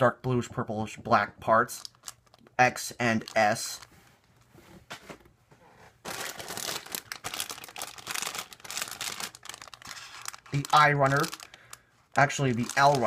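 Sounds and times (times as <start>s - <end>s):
plastic bag crinkling: 1.8s - 2.5s, 3.1s - 3.9s, 6.0s - 13.0s.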